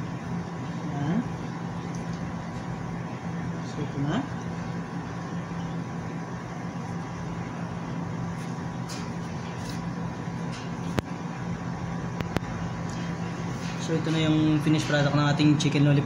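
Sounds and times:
machine hum: 0:00.0 - 0:16.0.

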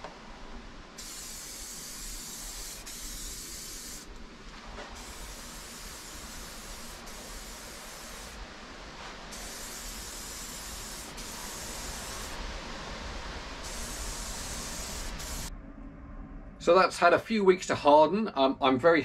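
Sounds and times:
spray paint can hissing: 0:01.0 - 0:04.1, 0:05.0 - 0:08.4, 0:09.3 - 0:12.4, 0:13.6 - 0:15.5.

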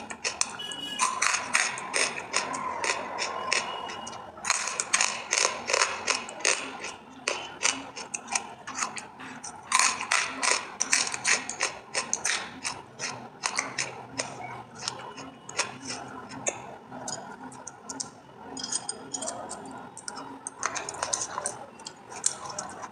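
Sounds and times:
crisp chewing crunches: 0:00.0 - 0:18.1.

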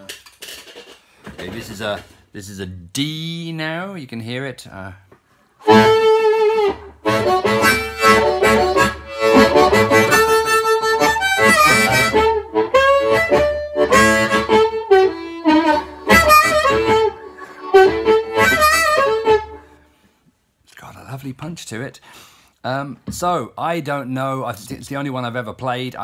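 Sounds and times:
amplified blues harmonica: 0:05.6 - 0:20.1.

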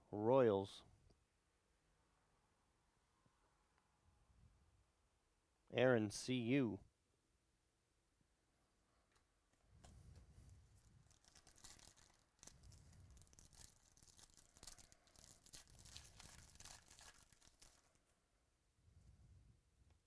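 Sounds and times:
foil wrapper crinkling and tearing: 0:10.8 - 0:18.1.

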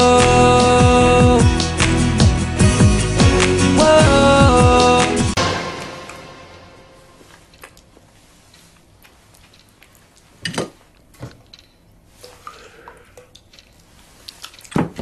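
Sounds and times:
wet chewing noises: 0:08.7 - 0:11.1, 0:12.2 - 0:14.8.

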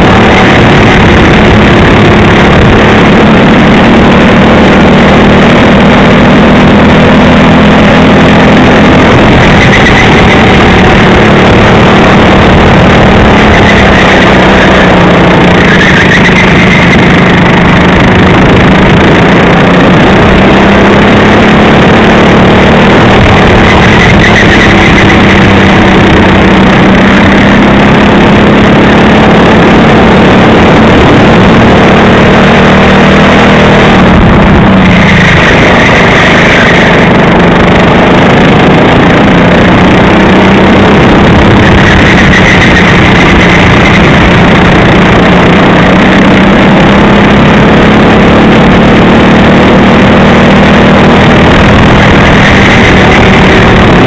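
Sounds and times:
kart engine revving: 0:00.0 - 0:54.0.

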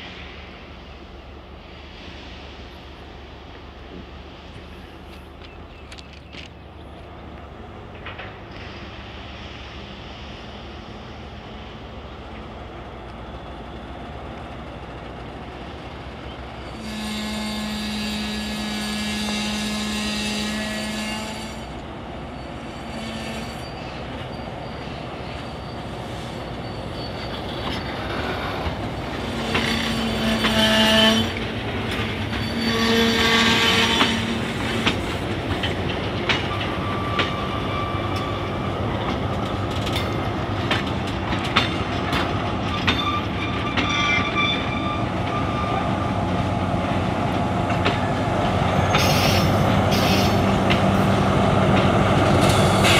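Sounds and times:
train wheels and couplings clacking: 0:03.4 - 0:10.3, 0:11.6 - 0:16.7, 0:21.6 - 0:52.9
train horn blast: 0:16.7 - 0:21.8, 0:29.3 - 0:31.4, 0:32.5 - 0:34.6
wheel squeal: 0:22.4 - 0:34.3, 0:36.4 - 0:38.7, 0:42.6 - 0:46.2.

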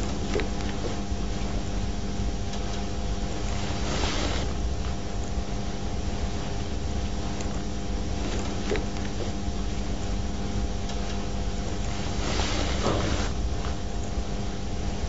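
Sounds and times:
low electrical hum and hiss: 0:00.0 - 0:15.0
brush stroking across paper: 0:03.4 - 0:04.5, 0:11.8 - 0:13.4.

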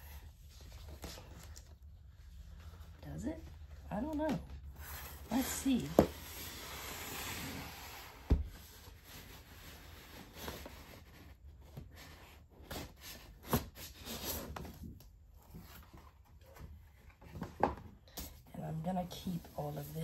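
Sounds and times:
cardboard boxes sliding and rubbing: 0:04.8 - 0:12.4.

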